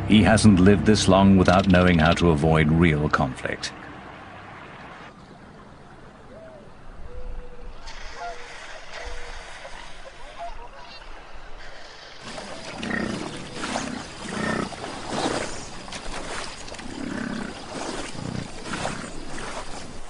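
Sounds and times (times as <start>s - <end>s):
large animals growling and roaring: 12.2s - 15.7s, 16.7s - 19.5s.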